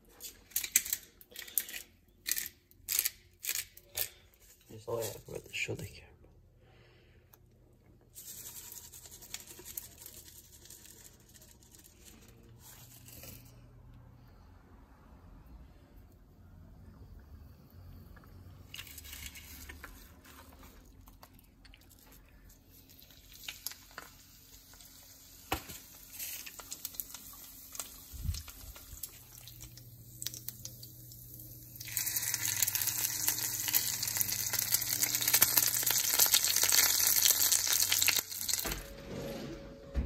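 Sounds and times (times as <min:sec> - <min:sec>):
fish sizzling in hot oil: 0:22.9 - 0:38.7.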